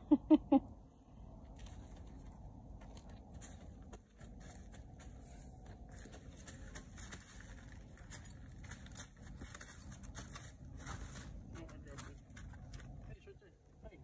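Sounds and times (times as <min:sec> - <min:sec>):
tarp rustling under hooves: 0:02.9 - 0:13.2.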